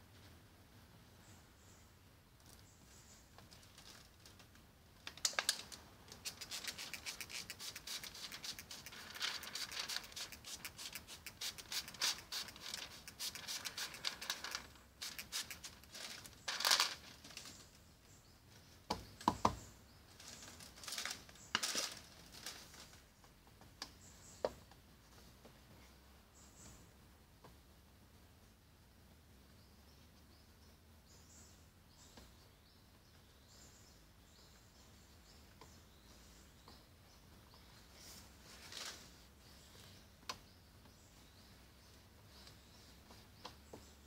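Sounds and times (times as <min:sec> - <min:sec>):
plastic film crackling: 0:08.1 - 0:10.4, 0:11.5 - 0:17.4, 0:20.2 - 0:23.0.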